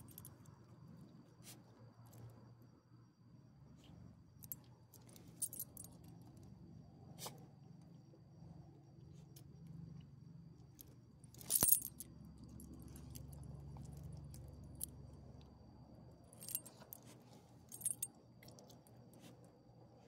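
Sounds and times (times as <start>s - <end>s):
dog tags jingling: 11.4s - 12.0s.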